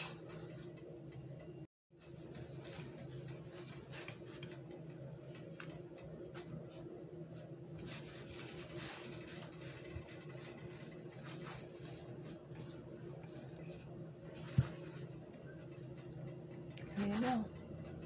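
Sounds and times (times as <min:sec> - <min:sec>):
rolling pin rubbing on dough: 0:02.0 - 0:16.2.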